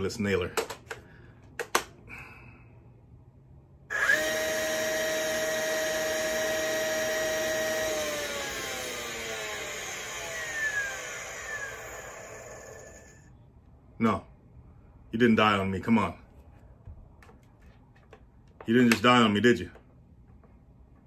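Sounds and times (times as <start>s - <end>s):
motor high-pitched whine: 3.9s - 13.3s.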